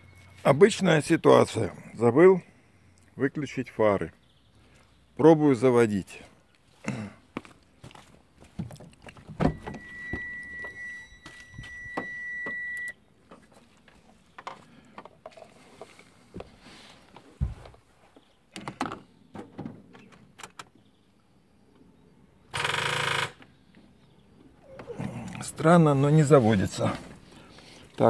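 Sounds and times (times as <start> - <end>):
high electronic beep: 9.4 - 13.0.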